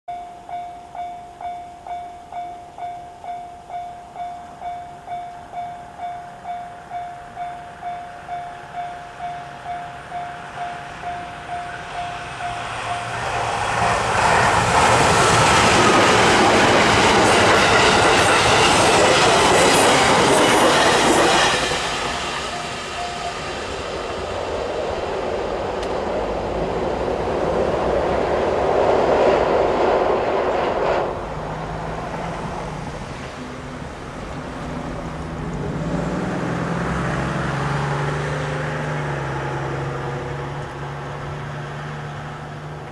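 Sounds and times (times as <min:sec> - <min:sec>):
level crossing bell ringing: 0:00.1 - 0:13.3, 0:22.0 - 0:23.9
electric train passing: 0:00.1 - 0:42.9
wheels clacking over rail joints: 0:08.6 - 0:33.4.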